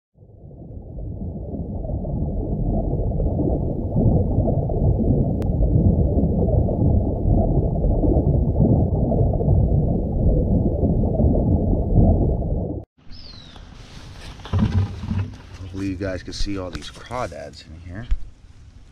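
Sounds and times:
underwater rumble of churning water: 0.2 - 12.9.

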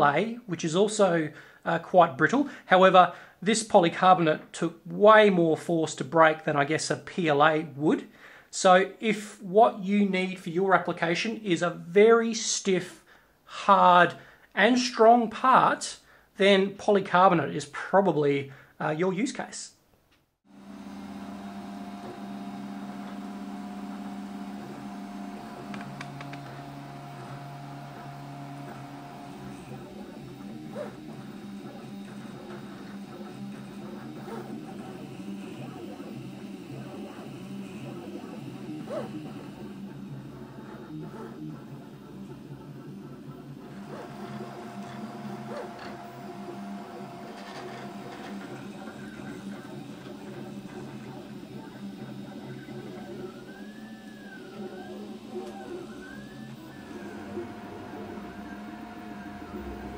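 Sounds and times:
cooling fan whirring: 20.5 - 59.9
stepper motors humming: 20.5 - 59.9
steady high tone: 54.4 - 59.9.

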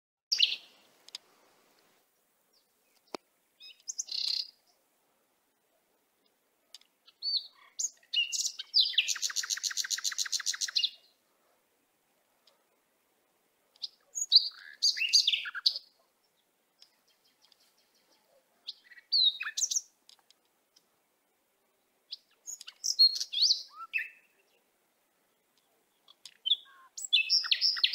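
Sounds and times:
small birds chirping: 0.3 - 4.9, 5.5 - 27.9
fast bird trill: 7.3 - 11.0, 26.4 - 27.9.

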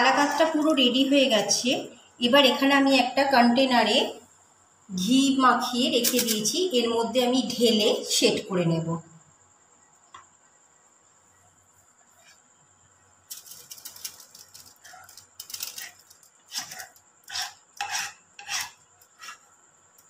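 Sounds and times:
spatula scraping a pan: 14.8 - 19.6.

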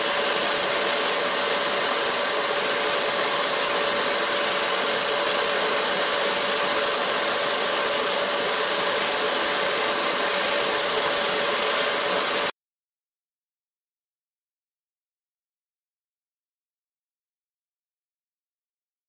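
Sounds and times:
wire brush wheel scouring metal: 0.0 - 12.5.

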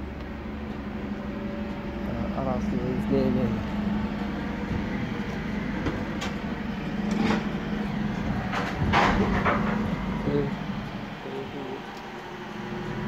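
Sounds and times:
refuse lorry engine humming: 0.0 - 13.0
wheelie bins clattering: 4.6 - 10.4.

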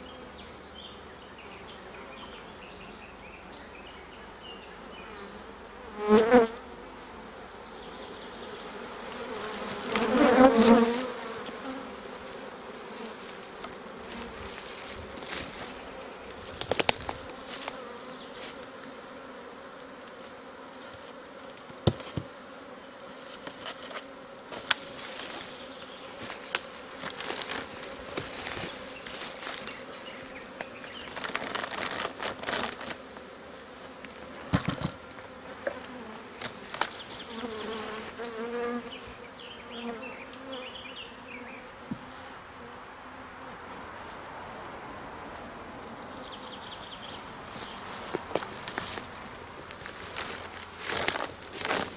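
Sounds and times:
bees buzzing: 0.0 - 44.1, 45.0 - 51.9
wooden hive boxes knocking: 21.7 - 22.3.

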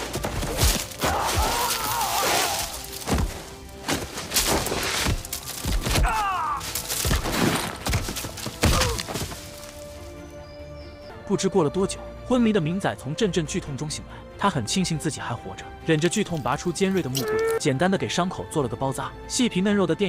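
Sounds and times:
film music: 0.0 - 20.0
body thudding on ground: 0.2 - 9.8.

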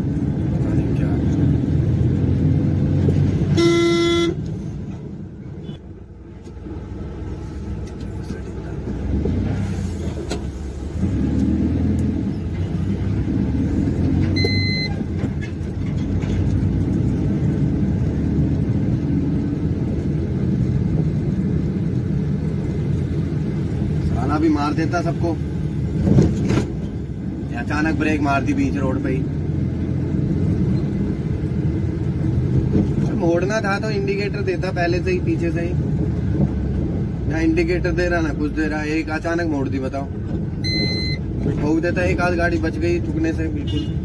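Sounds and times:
truck engine and road noise: 0.0 - 44.0
truck horn blast: 3.5 - 4.5, 43.6 - 44.0
high-pitched beep: 14.4 - 14.9, 40.6 - 41.2.

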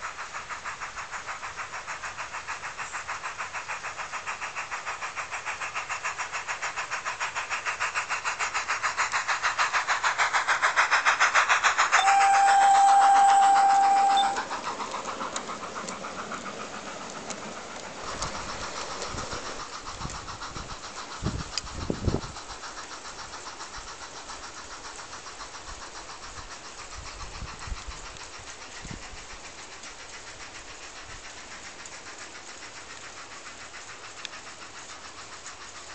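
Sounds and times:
model steam locomotive chuffing: 0.0 - 35.9
wheel clatter: 5.7 - 22.8
steam whistle: 12.0 - 14.5.

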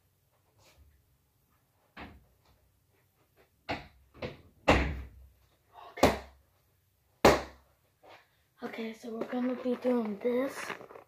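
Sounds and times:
bedroom door shutting: 4.2 - 5.1.

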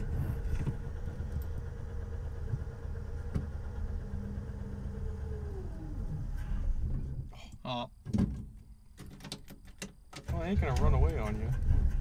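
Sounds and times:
car engine idling: 0.0 - 7.8
faint engine whine: 0.0 - 8.1.

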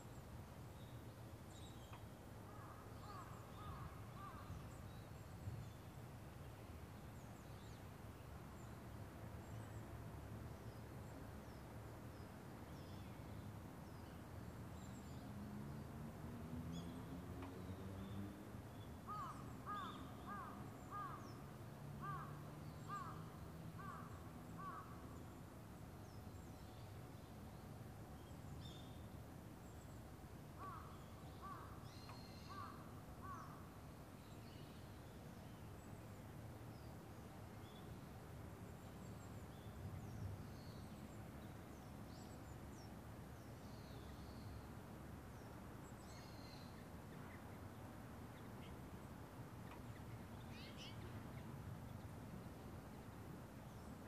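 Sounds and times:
small birds chirping: 49.6 - 52.2.

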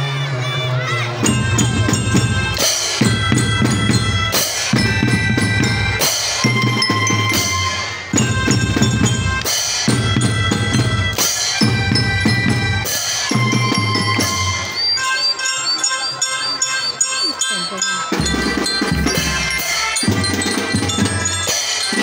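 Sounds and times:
bass drum and snare beats: 1.2 - 14.8, 18.1 - 22.0
melodicas playing a tune: 1.3 - 22.0.

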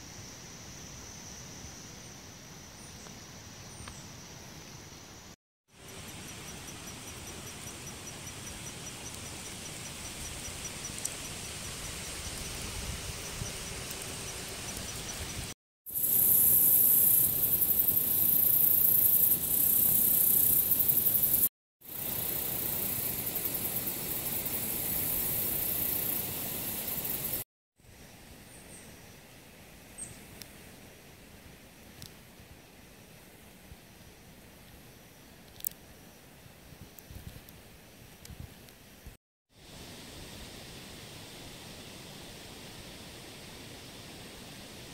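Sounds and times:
insect chorus buzzing: 0.0 - 27.4.

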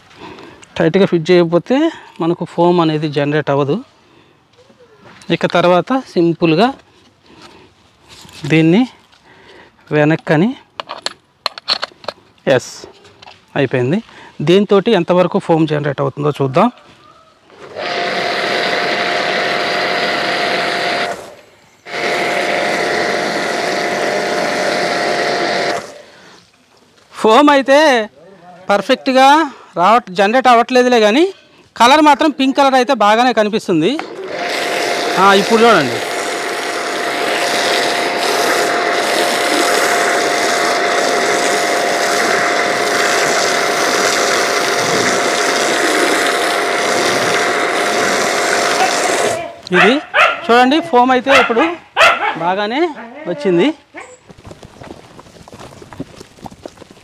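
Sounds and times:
pressure washer motor whine: 17.6 - 26.1, 34.1 - 49.4
hiss of spray: 35.2 - 49.4.

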